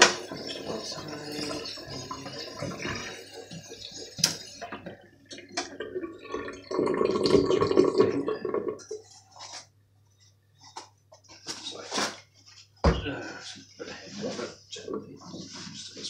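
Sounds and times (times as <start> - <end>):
tap water running into sink: 0.0 - 9.0.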